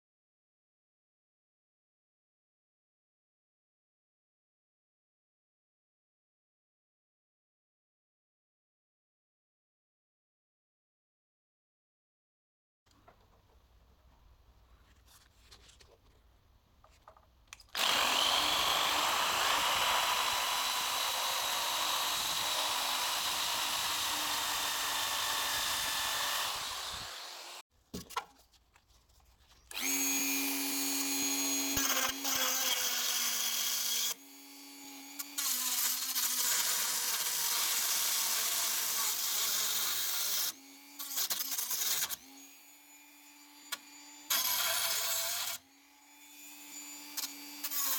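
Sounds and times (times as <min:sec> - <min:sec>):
cut-off disc grinding metal: 0:17.7 - 0:27.6
rotary tool motor whine: 0:17.7 - 0:27.6, 0:29.7 - 0:35.4.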